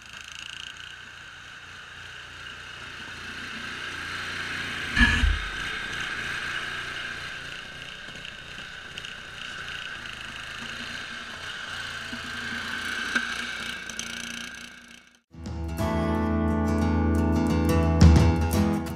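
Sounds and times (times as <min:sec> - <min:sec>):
garden tractor engine running: 0:00.0 - 0:15.2
high whine: 0:04.7 - 0:14.0.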